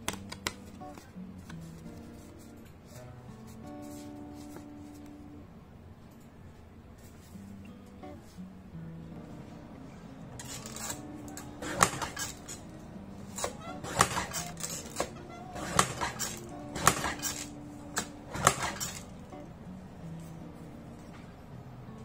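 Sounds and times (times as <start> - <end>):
paper cutter blade clacking: 10.4 - 12.6, 13.3 - 19.1.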